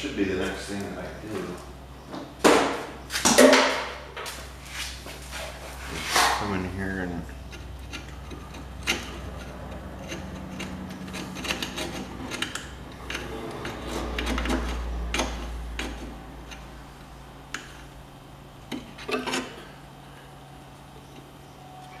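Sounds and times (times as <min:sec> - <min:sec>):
low steady hum: 0:00.0 - 0:22.0
hand tools scraping metal: 0:04.7 - 0:18.0, 0:18.7 - 0:19.8.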